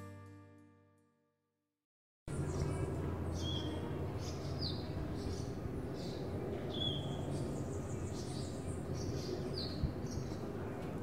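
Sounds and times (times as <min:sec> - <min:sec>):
small birds chirping: 0:02.3 - 0:11.0
street ambience rumble: 0:02.3 - 0:11.0.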